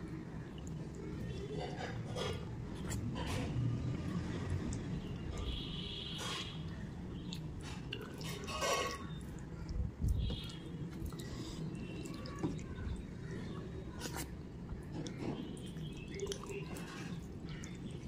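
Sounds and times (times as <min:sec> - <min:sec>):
wet chewing and lip-smacking: 0:07.2 - 0:13.1, 0:14.0 - 0:18.0.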